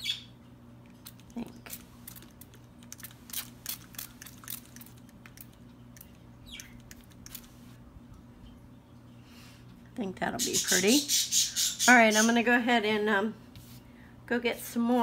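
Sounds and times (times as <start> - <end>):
bird chirp: 0.0 - 0.4, 6.4 - 7.0, 10.4 - 12.3.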